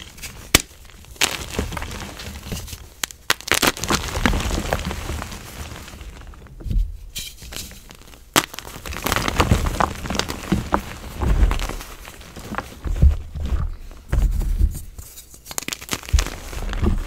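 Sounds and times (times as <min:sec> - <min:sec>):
sharp chalk crack: 0:00.0 - 0:06.3, 0:07.5 - 0:12.7, 0:15.0 - 0:17.0
chalk crunching and crackling: 0:00.0 - 0:06.6, 0:07.2 - 0:17.0.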